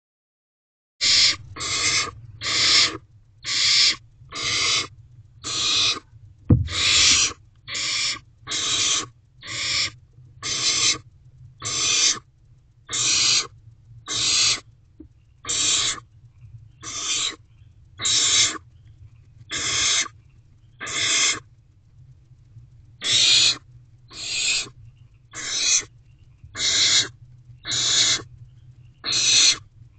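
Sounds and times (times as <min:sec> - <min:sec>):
owlets rasping begging hisses: 0:01.0 - 0:06.0, 0:06.7 - 0:11.0, 0:19.5 - 0:20.1
sharp knock: 0:06.5 - 0:07.3.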